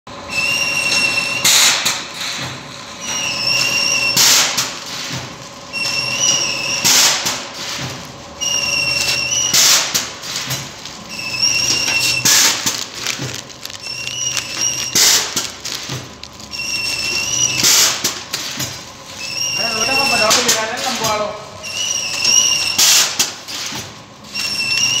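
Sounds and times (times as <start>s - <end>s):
low mechanical hum: 0.1s - 25.0s.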